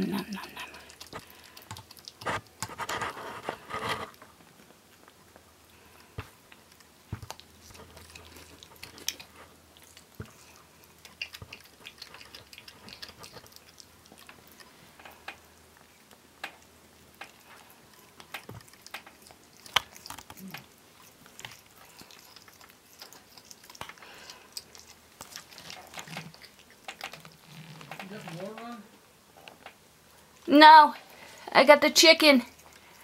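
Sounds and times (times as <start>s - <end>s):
raccoon chewing wet bites: 0.0s - 28.8s, 32.4s - 33.0s
bone cracking: 16.4s - 28.6s.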